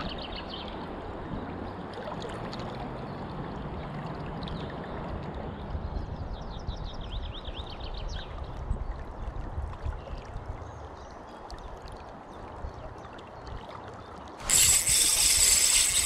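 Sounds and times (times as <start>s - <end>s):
running river water: 0.0s - 16.0s
wind rumbling on microphone: 2.8s - 10.8s, 14.4s - 16.0s
fishing reel whirring: 14.4s - 16.0s.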